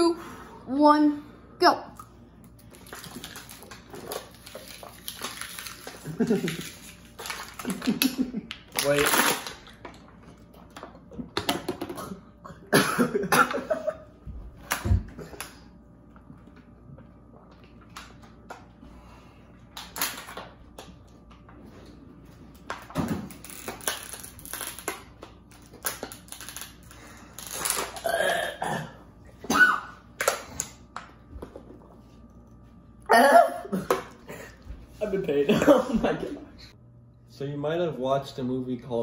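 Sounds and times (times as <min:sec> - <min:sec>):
plastic bottle crinkling: 0:02.7 - 0:10.1.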